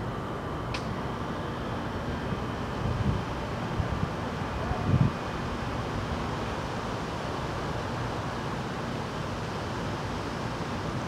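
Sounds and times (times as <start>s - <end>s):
wind through trees: 0.0s - 11.0s.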